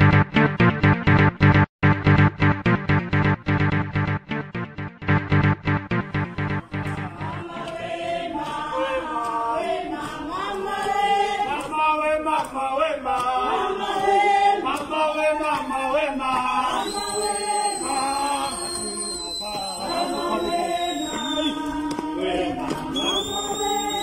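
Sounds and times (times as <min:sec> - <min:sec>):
group singing: 0:06.4 - 0:24.0.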